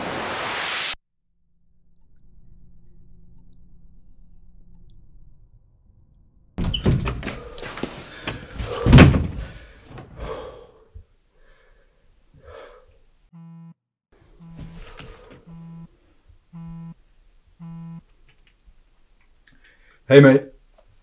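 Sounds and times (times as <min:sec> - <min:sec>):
door shutting with a thud: 0:06.6 - 0:10.1
man exhaling: 0:07.3 - 0:13.0
phone buzzing: 0:13.4 - 0:15.9, 0:16.5 - 0:17.0, 0:17.6 - 0:18.0.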